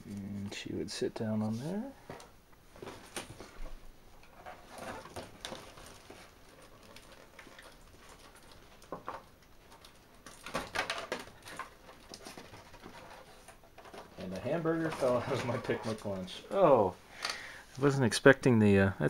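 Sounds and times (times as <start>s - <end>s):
packaging rustling: 1.6s - 16.6s.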